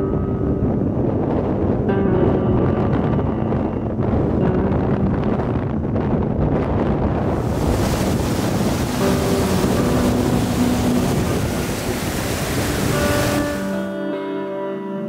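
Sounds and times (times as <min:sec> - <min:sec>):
wind buffeting microphone: 0:00.0 - 0:14.1
faint guitar music: 0:00.0 - 0:15.0
river rapid rushing: 0:07.3 - 0:13.9.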